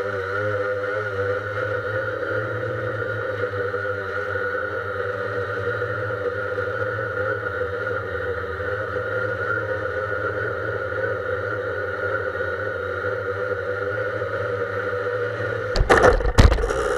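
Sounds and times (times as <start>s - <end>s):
drone propellers whining: 15.8s - 16.9s.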